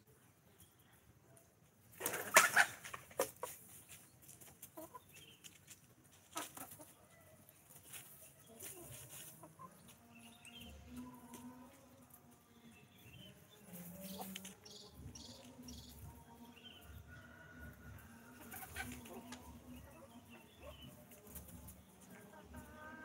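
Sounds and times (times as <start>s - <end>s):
chickens clucking softly: 0.1s - 12.2s, 16.8s - 23.0s.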